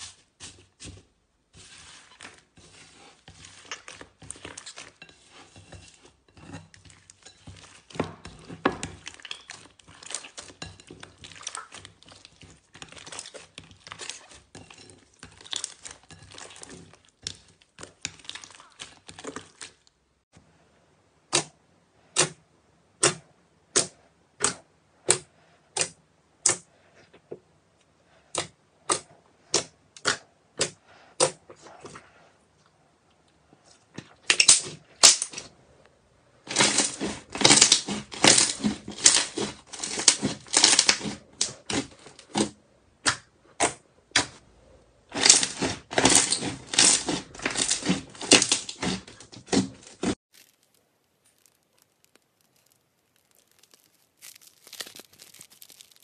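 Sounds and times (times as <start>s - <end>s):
slime crackling as kneaded: 1.6s - 20.0s, 36.4s - 42.5s, 45.1s - 56.0s.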